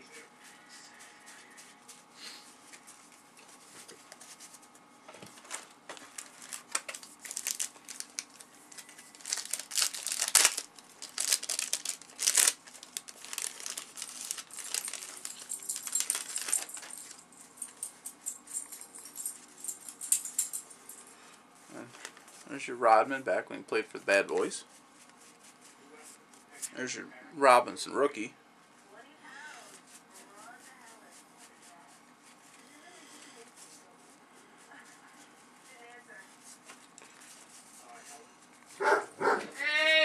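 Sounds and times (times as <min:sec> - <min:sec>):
trading cards being flipped: 0:05.4 - 0:17.2
cellophane wrapper crinkling: 0:05.4 - 0:20.6.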